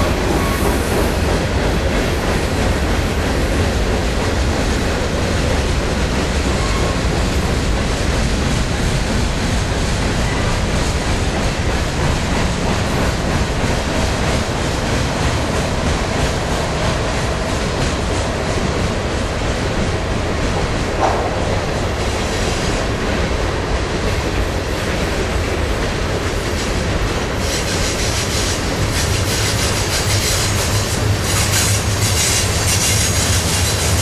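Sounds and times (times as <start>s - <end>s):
clatter over rail joints: 0.0s - 23.3s
steel wheels rumbling on rail: 0.0s - 34.0s.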